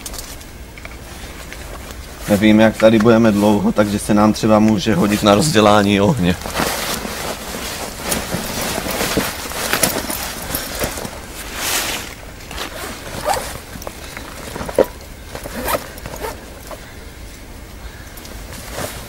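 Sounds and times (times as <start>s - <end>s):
rummaging rustles in a pack: 0.0s - 17.0s, 17.9s - 19.0s
backpack zipper: 11.6s - 13.8s, 14.4s - 16.5s.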